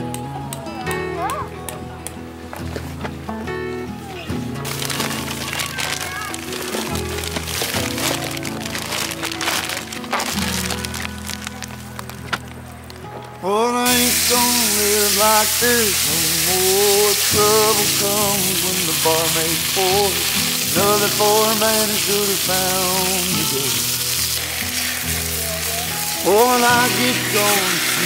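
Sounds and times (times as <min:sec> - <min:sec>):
background music melody: 0:00.0 - 0:28.0
steaks sizzling in a skillet: 0:04.6 - 0:12.1, 0:13.8 - 0:28.0.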